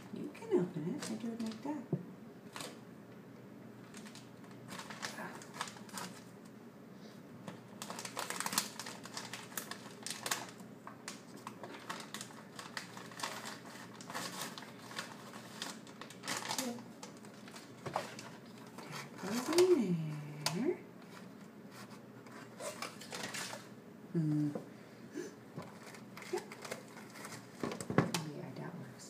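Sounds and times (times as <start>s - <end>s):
paper bag crinkling: 3.8s - 6.3s, 7.5s - 23.7s, 25.6s - 28.4s.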